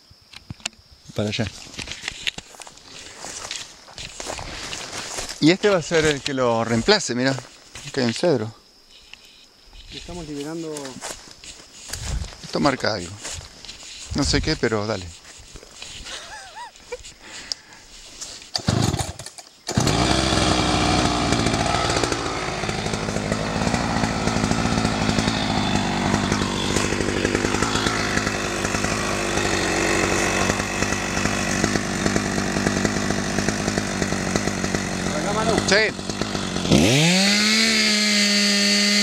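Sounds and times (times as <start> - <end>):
chainsaw running: 15.8 - 39.0.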